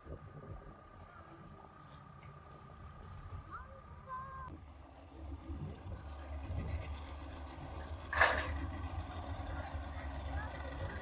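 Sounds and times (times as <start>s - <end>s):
outboard motor humming: 4.2s - 11.0s.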